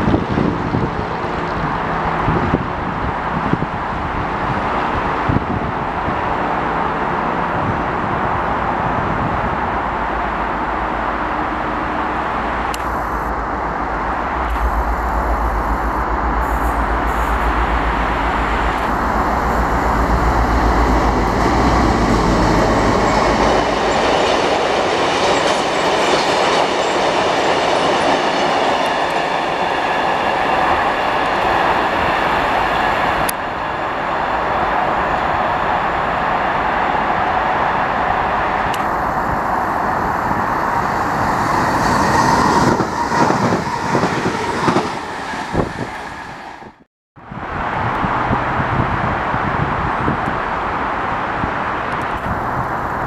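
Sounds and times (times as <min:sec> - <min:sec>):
diesel locomotive rumble: 0:00.0 - 0:26.8, 0:30.6 - 0:53.0
train wheels clacking on rails: 0:38.7 - 0:46.7.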